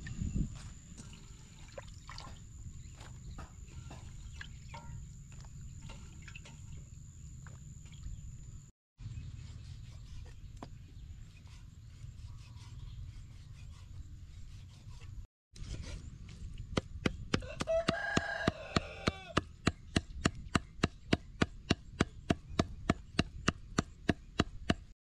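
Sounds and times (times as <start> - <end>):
cleaver chopping meat on wood: 16.7 - 24.9
rooster crowing: 17.4 - 19.4.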